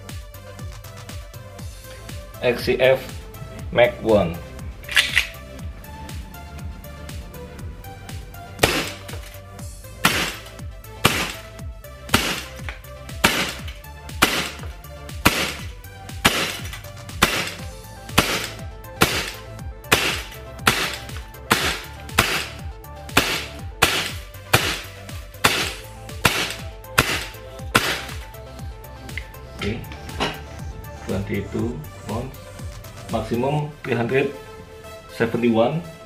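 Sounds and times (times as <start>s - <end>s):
background music: 0.0s - 36.0s
airsoft pistol firing: 8.6s - 9.2s, 10.0s - 11.5s, 12.1s - 17.6s, 18.2s - 28.2s.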